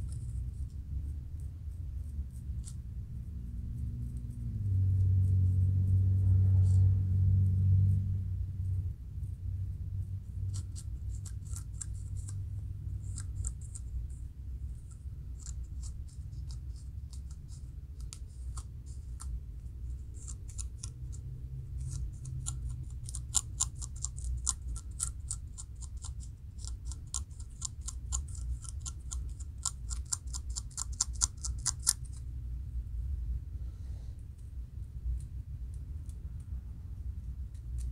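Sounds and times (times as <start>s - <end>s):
fingernails scratching scalp: 10.5s - 13.9s, 21.8s - 32.2s.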